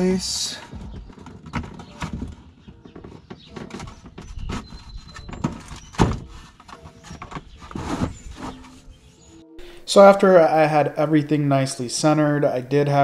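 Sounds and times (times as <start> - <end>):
speaker box knocking and scraping: 0.6 - 8.8.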